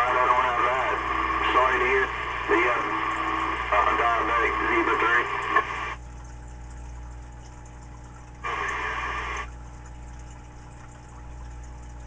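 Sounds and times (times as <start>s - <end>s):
burst of radio static: 0.0s - 6.0s, 8.4s - 9.5s
faint radio hiss: 0.0s - 6.0s, 8.4s - 9.5s
steady mains hum: 0.0s - 12.0s.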